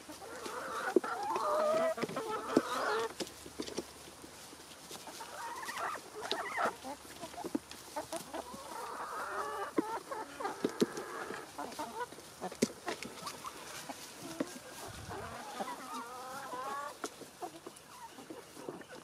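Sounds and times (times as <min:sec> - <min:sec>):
chickens clucking: 0:00.0 - 0:19.0.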